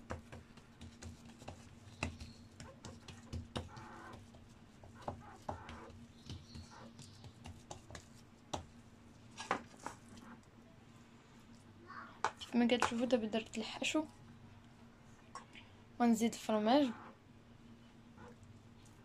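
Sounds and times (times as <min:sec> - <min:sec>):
hands patting dough: 0:00.0 - 0:08.8.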